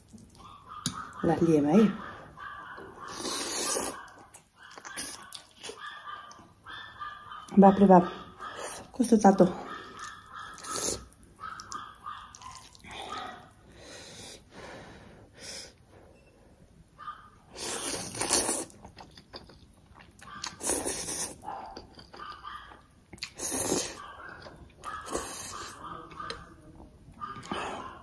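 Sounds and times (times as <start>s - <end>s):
person slurping noodles: 3.1s - 4.0s, 17.5s - 18.8s, 20.6s - 21.4s, 23.2s - 24.0s.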